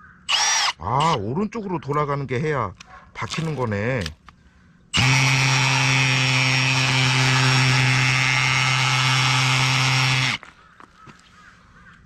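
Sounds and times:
cordless drill running: 0.3s - 1.2s, 5.0s - 10.4s.

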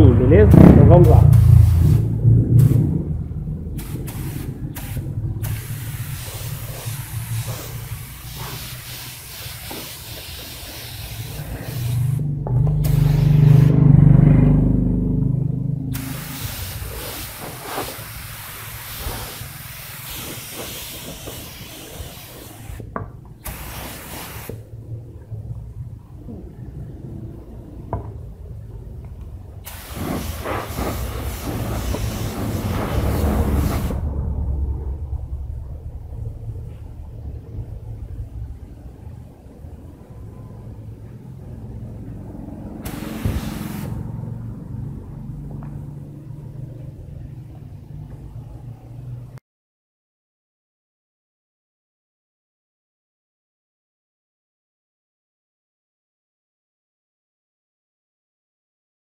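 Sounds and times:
low motor hum: 0.0s - 5.4s
low rumble: 0.0s - 7.4s, 30.8s - 42.7s
aerosol spray can hissing: 3.8s - 12.2s, 12.8s - 13.7s, 16.0s - 24.6s, 29.6s - 34.0s, 42.9s - 44.0s.

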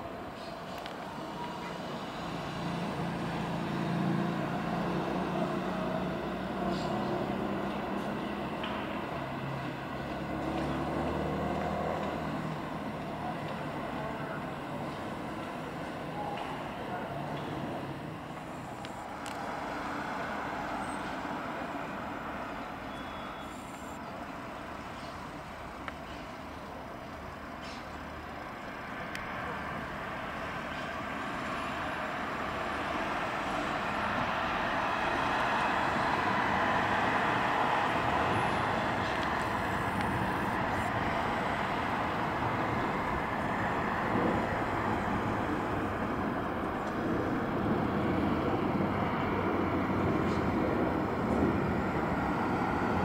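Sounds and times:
jet airliner passing overhead: 32.7s - 53.0s.

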